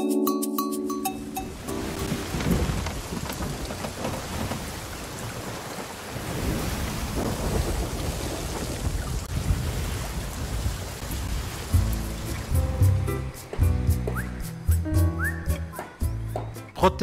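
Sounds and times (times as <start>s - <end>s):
heavy rain: 1.5s - 13.1s
low thunder rumbling: 1.8s - 12.3s.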